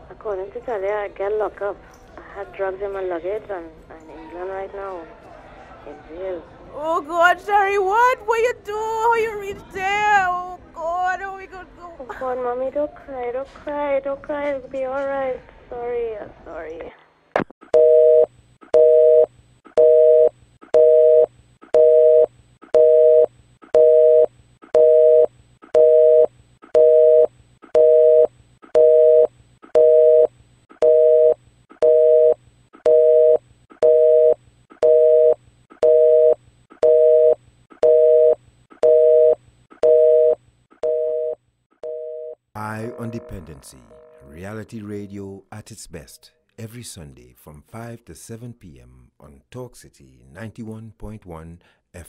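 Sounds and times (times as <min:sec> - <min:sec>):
telephone busy signal: 0:17.8 - 0:44.4.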